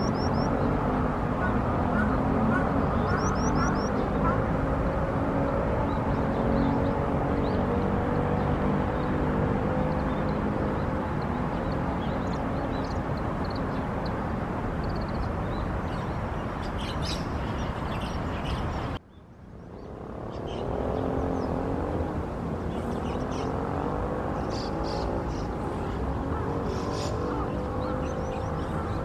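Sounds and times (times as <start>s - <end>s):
bird chirps: 0.0s - 4.4s, 14.8s - 21.6s
distant engines droning: 0.0s - 29.0s.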